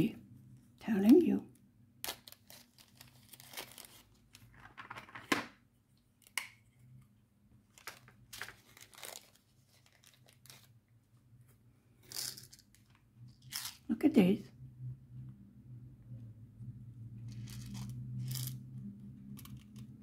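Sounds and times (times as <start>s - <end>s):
plastic packets crinkling: 2.1s - 4.5s, 7.7s - 10.7s.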